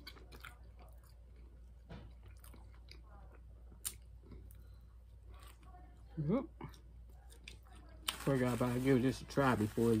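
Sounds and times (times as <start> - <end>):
person chewing: 0.0 - 5.7
low steady hum: 0.0 - 10.0.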